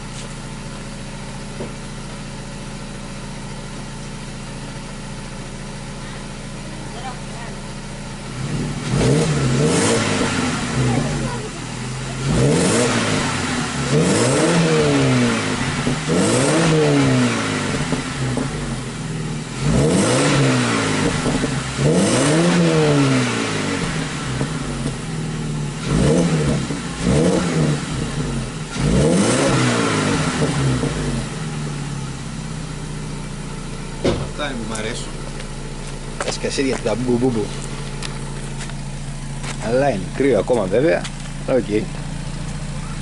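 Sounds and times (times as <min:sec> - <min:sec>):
car engine revving: 0:00.0 - 0:43.0.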